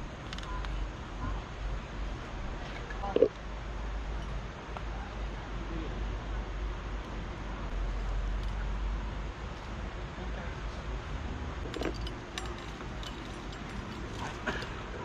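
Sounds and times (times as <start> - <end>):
steady low rumble: 0.0 - 15.0
light clinks and clicks: 11.6 - 15.0.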